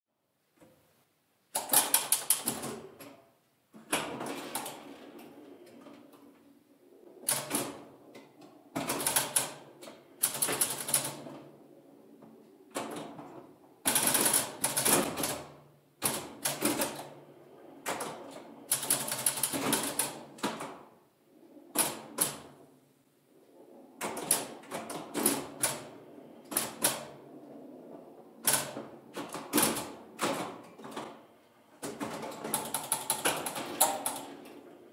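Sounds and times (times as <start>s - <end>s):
pinball machine mechanical clacking: 31.8s - 34.7s.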